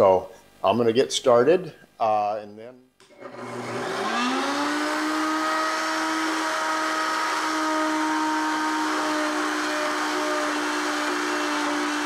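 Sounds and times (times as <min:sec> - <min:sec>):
router motor whining: 0:03.1 - 0:12.0.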